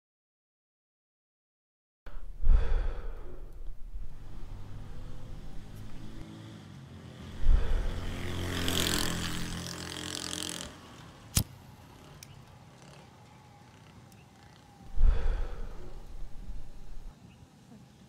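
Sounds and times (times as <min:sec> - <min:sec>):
motor vehicle passing: 0:03.8 - 0:17.1.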